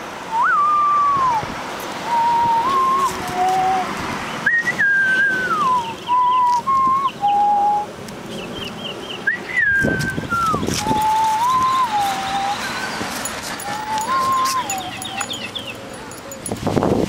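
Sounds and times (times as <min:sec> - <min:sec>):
person whistling a tune: 0:00.3 - 0:01.4, 0:02.1 - 0:03.9, 0:04.5 - 0:07.9, 0:09.3 - 0:15.6.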